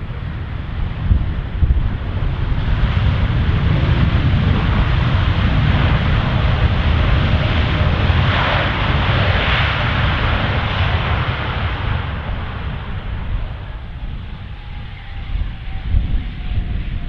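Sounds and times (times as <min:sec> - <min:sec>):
jet engine roar: 0:00.0 - 0:17.0.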